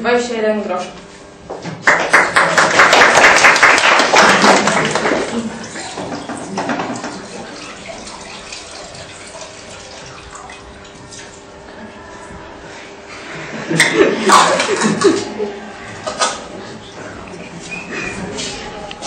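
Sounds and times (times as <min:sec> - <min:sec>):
audience applauding: 0:01.8 - 0:06.3.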